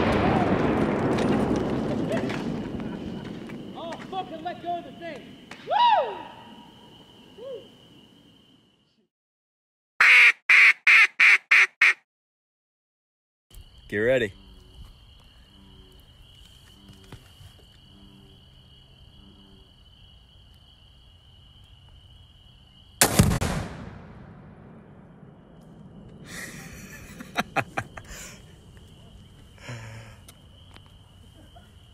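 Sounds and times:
explosive blast: 0:23.0 - 0:26.8.

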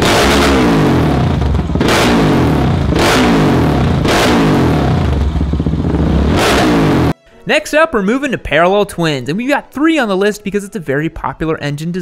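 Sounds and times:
motorcycle engine revving: 0:00.0 - 0:07.2.

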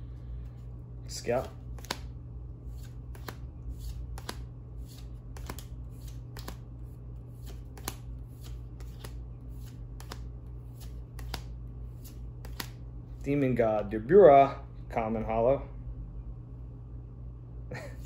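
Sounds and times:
cards sliding off a stack: 0:01.8 - 0:02.1, 0:02.7 - 0:06.6, 0:07.4 - 0:12.8.

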